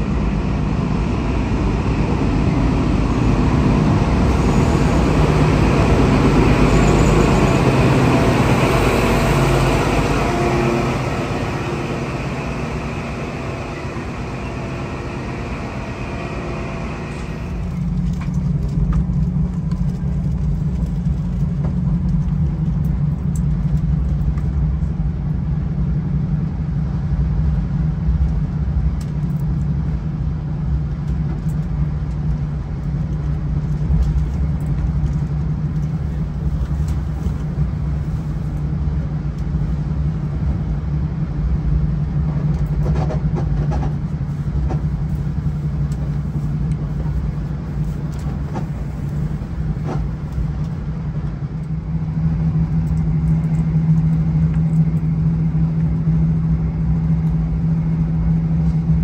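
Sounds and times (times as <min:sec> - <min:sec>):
diesel train engine drone: 0:00.0 - 0:59.0.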